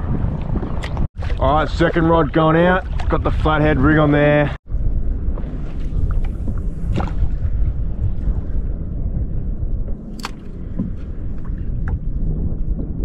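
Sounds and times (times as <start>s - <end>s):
wind rumbling on microphone: 0.0s - 13.0s.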